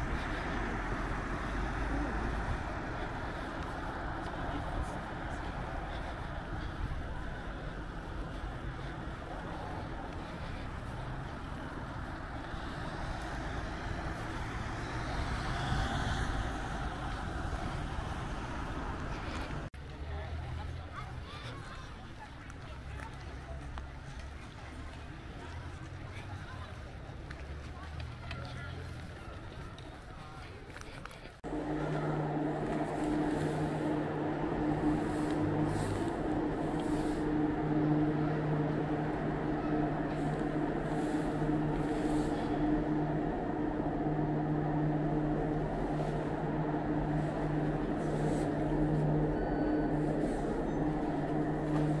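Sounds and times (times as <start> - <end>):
pitched tones drone: 0.0 - 10.6, 31.4 - 52.0
cars driving on road: 0.0 - 52.0
low mechanical hum: 31.4 - 52.0.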